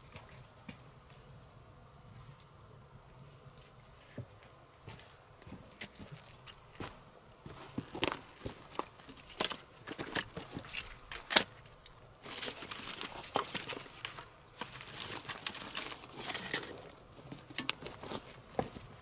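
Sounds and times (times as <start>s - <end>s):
twigs rustling and crinkling: 2.1s - 19.0s.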